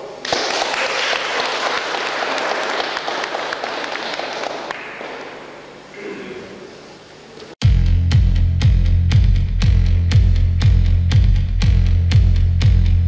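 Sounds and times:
audience applauding: 0:00.2 - 0:05.7.

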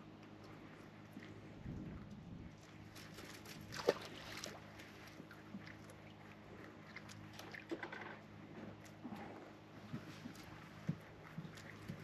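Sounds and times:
water lapping: 0:00.4 - 0:12.0.

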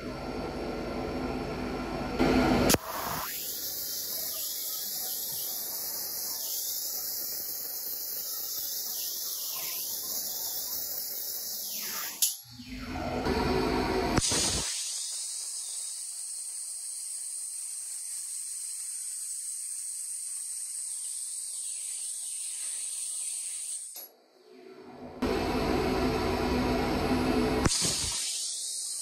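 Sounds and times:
compressed-air jet hissing: 0:02.7 - 0:12.2, 0:27.6 - 0:29.0.

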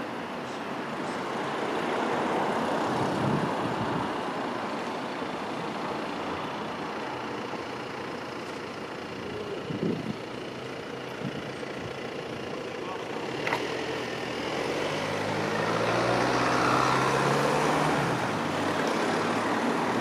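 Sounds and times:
street traffic: 0:00.0 - 0:20.0
vehicle passing: 0:13.2 - 0:20.0.

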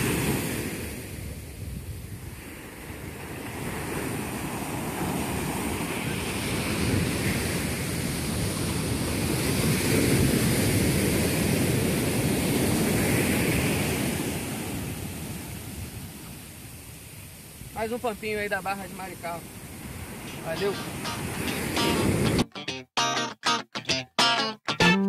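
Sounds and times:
ocean surf breaking on sand: 0:00.0 - 0:22.4
wind buffeting microphone: 0:00.2 - 0:16.2.

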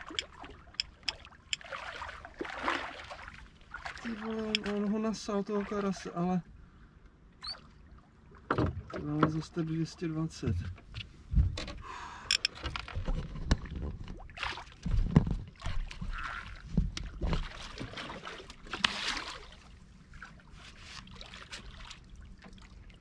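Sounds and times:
knocks and thumps in a boat: 0:08.4 - 0:09.6, 0:10.3 - 0:19.6.

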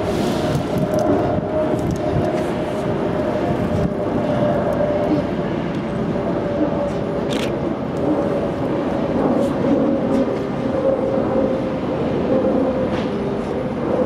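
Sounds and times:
train rumbling past: 0:00.0 - 0:14.0.

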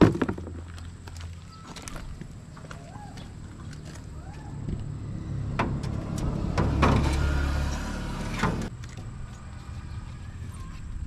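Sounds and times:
air filter scraping in housing: 0:05.2 - 0:08.7.

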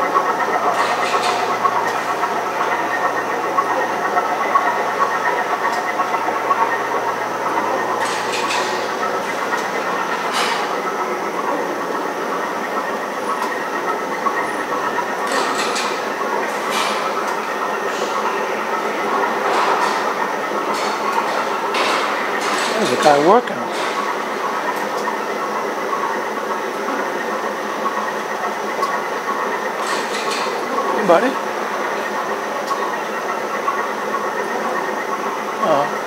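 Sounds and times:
squealing whine: 0:00.0 - 0:15.3
mechanical running noise: 0:00.0 - 0:36.0.

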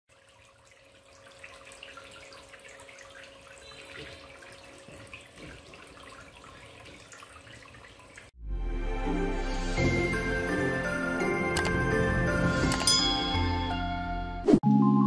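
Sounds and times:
water jets splashing into basin: 0:00.1 - 0:08.4.

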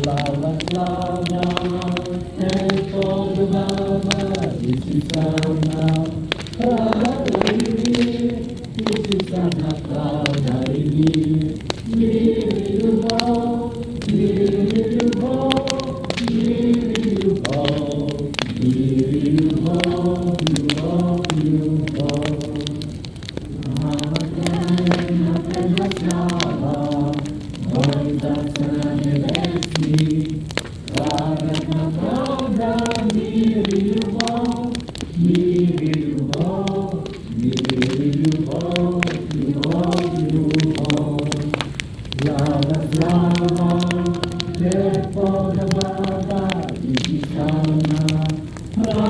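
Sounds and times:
group singing in harmony: 0:00.0 - 0:49.0
wood fire crackling: 0:00.0 - 0:49.0.

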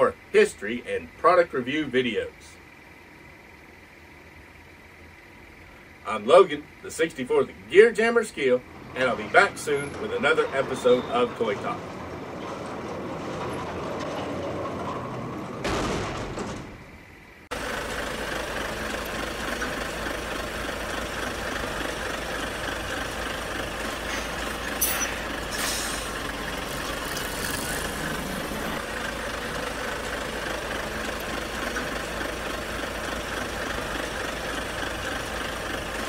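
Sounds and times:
truck engine idling: 0:00.0 - 0:36.0
air release hisses: 0:24.0 - 0:26.3.

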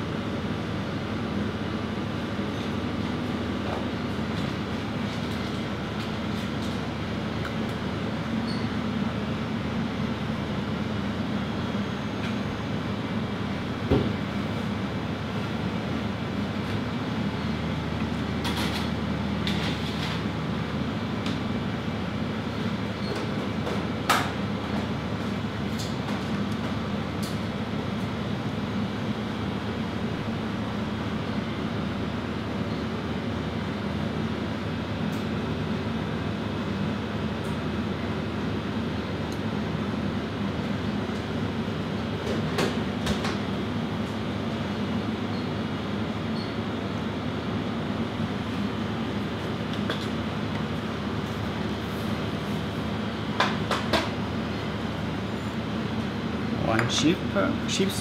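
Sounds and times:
kitchen ventilation hum: 0:00.0 - 0:58.0
kitchen machinery humming: 0:35.7 - 0:58.0.

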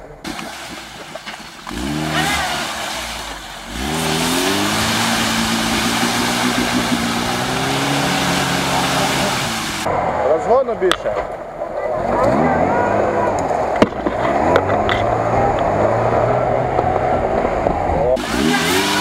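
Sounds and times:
car engine revving: 0:00.3 - 0:10.3, 0:11.8 - 0:19.0
rushing noise: 0:00.3 - 0:10.7.

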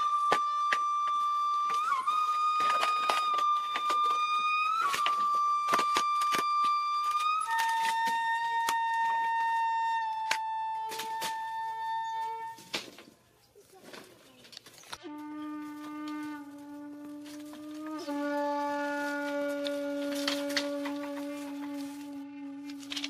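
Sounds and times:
held whistle-like tone: 0:00.0 - 0:12.7.

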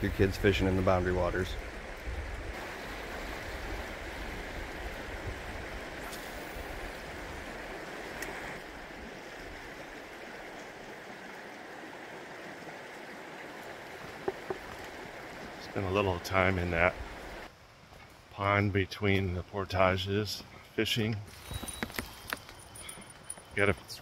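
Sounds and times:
river flowing over rocks: 0:02.6 - 0:17.5.

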